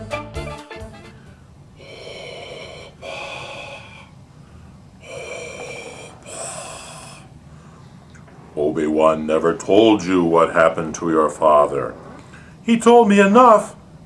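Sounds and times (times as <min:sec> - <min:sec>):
hissing respirator breathing: 0:01.0 - 0:09.1, 0:09.7 - 0:12.7.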